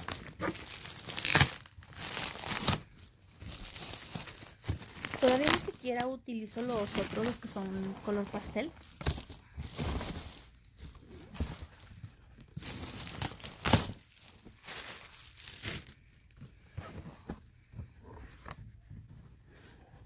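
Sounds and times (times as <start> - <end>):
packaging crinkling and tearing: 0.0 - 16.0.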